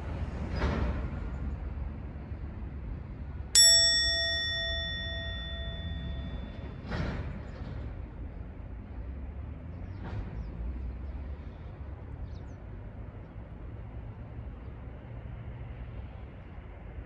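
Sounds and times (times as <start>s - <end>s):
bright metallic ding: 3.6s - 7.1s.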